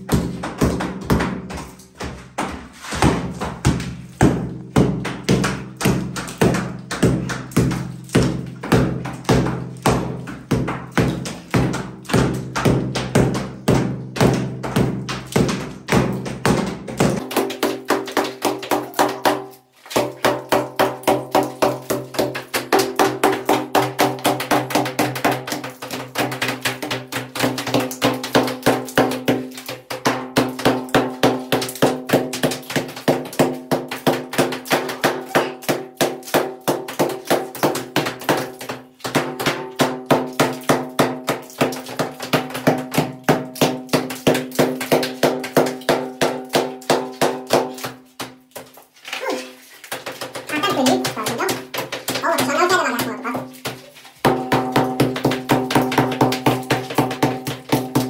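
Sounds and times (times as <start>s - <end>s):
background music with percussive beat: 0.0s - 48.4s, 53.5s - 58.0s.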